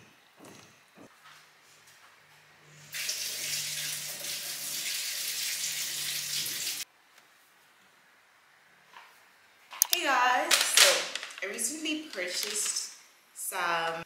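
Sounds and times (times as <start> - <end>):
water running from tap: 2.9 - 6.8.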